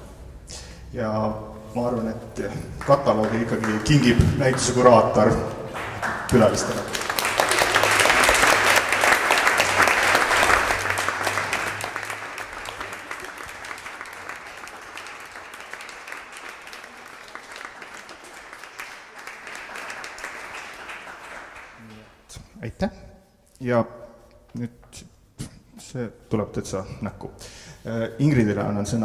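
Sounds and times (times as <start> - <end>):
audience applauding: 2.4 - 22.2.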